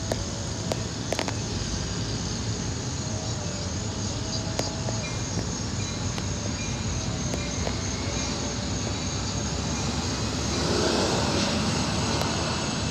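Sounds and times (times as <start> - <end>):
faint clicks: 0.0 - 1.4, 7.2 - 7.9
insect drone: 0.0 - 12.9
train rumble: 0.0 - 12.9.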